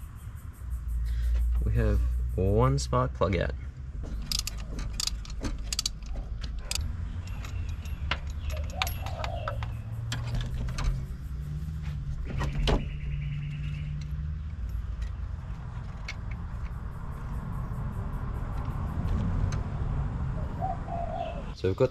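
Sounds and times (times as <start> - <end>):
hand tools clicking and clinking: 4.0 - 11.2.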